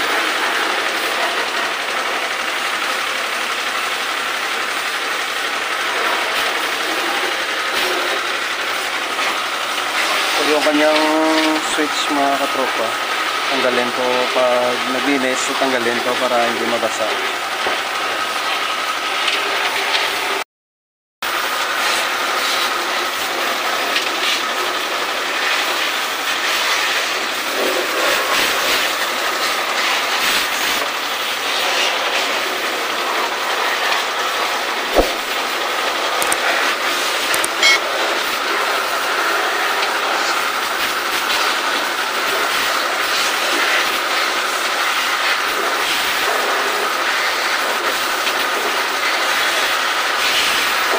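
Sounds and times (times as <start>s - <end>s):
pressure washer spraying water: 0.0s - 20.4s, 21.3s - 50.9s
sharp knock: 35.0s - 35.3s.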